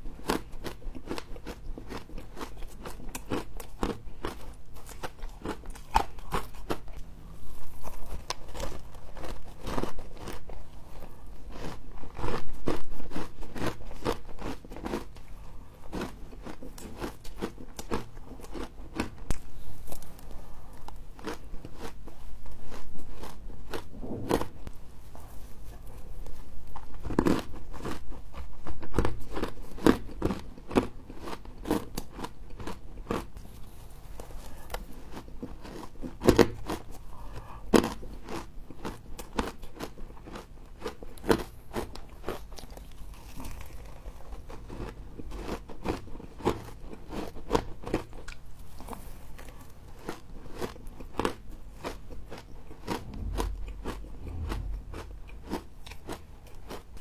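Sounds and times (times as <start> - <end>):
frost being crunched and chewed: 0.2 - 15.3, 37.8 - 54.7.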